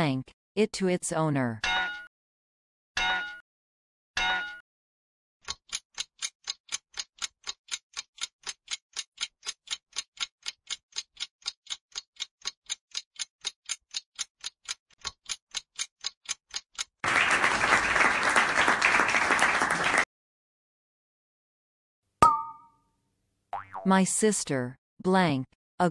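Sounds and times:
clock ticking: 5.4s - 17.0s
applause: 17.0s - 20.1s.

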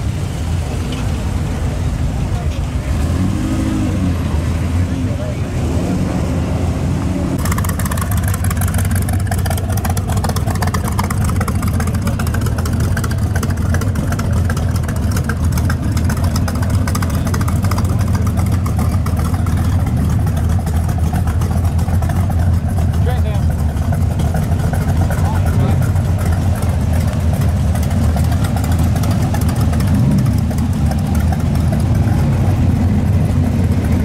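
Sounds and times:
engine idling with loud exhaust: 0.0s - 34.0s.

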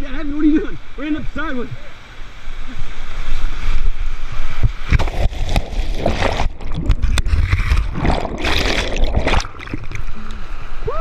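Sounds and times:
heavy splashes: 5.0s - 10.1s.

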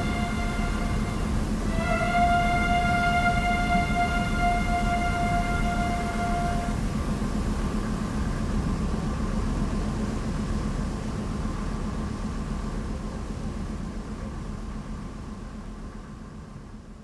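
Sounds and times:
boat engine drone: 0.0s - 11.6s
churning wake: 0.0s - 14.4s.

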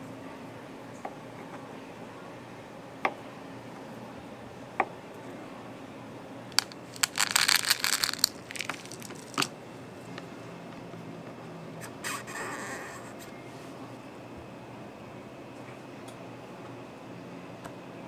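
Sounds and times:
chocolate chips rattling into plastic lid: 6.6s - 9.5s.

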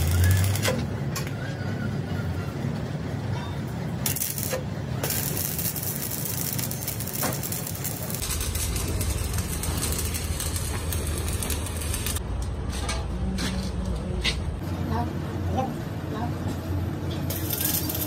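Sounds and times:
welding arc crackling: 0.0s - 0.8s, 4.0s - 12.2s, 17.3s - 18.0s.

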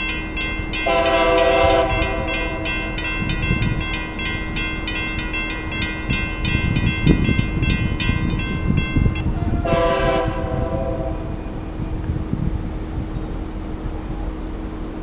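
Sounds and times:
railroad crossing bell ringing: 0.0s - 10.3s
train horn blast: 0.8s - 3.2s, 9.2s - 11.5s.

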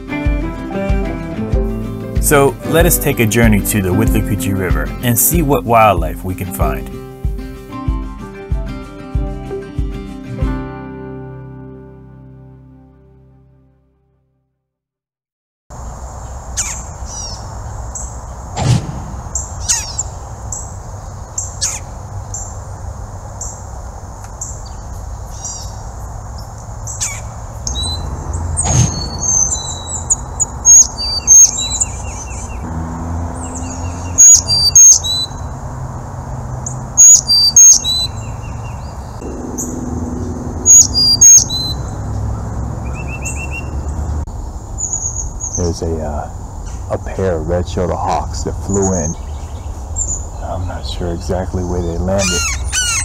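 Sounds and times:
high insect drone: 15.7s - 51.4s
chickadees calling: 15.8s - 53.0s.

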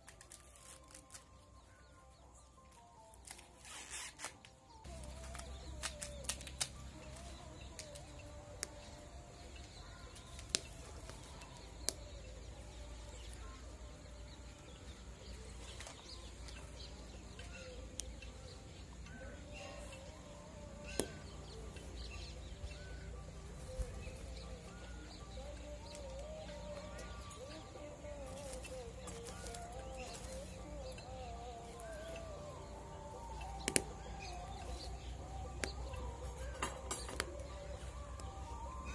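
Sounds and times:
corn cobs clicking on embers: 0.0s - 1.5s, 2.7s - 13.6s, 33.4s - 35.0s, 35.6s - 38.4s
birds calling: 0.0s - 38.9s
steady outdoor background: 0.0s - 38.9s.

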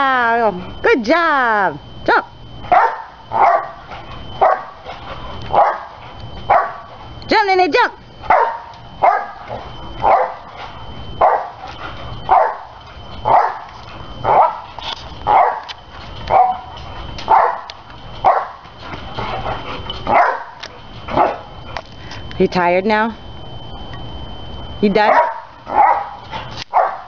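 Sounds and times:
dog barking: 2.7s - 3.8s, 4.4s - 4.8s, 5.5s - 6.9s, 8.3s - 10.4s, 11.2s - 11.6s, 12.3s - 12.7s, 13.3s - 13.7s, 14.3s - 14.7s, 15.3s - 15.7s, 16.3s - 16.7s, 17.3s - 18.6s, 20.1s - 20.6s, 21.2s - 21.4s, 25.1s - 27.0s.

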